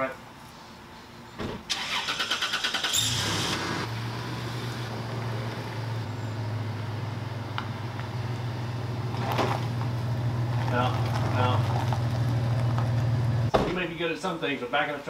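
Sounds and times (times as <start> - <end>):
thump: 1.4 - 1.7, 13.5 - 13.9
truck engine running: 1.7 - 13.5.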